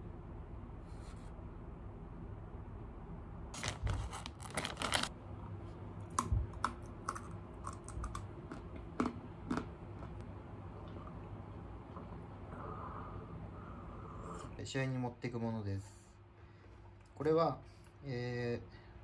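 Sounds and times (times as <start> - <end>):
steady low hum: 0.0 - 19.0
plastic snack bag crinkling: 3.6 - 5.1.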